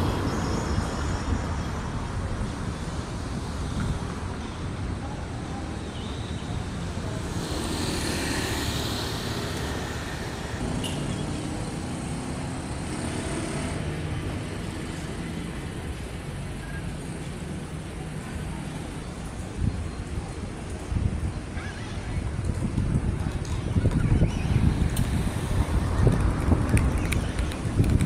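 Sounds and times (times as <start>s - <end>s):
street traffic rumble: 0.0s - 28.0s
passing hiss: 7.0s - 10.7s.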